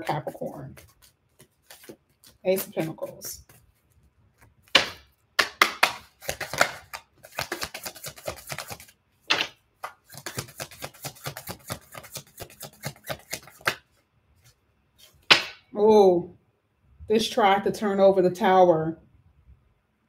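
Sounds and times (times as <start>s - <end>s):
cards shuffling papery clicks: 0.3s - 15.6s.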